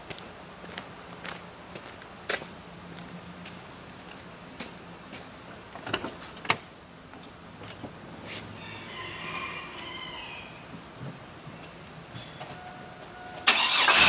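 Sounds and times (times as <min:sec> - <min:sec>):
footsteps on concrete: 0:00.0 - 0:06.4, 0:07.1 - 0:08.6.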